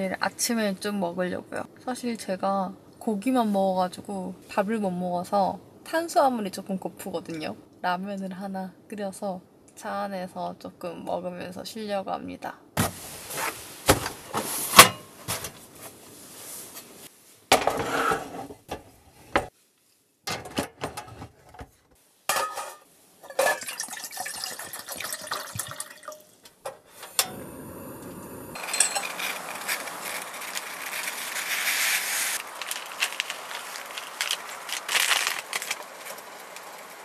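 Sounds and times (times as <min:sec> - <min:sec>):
pot and jug clinking: 0:22.3 - 0:27.4, 0:28.6 - 0:30.6
water poured into pot: 0:23.2 - 0:26.4, 0:27.6 - 0:31.6, 0:32.3 - 0:36.8
water boiling: 0:23.2 - 0:37.0
gas burner hissing: 0:26.8 - 0:37.0.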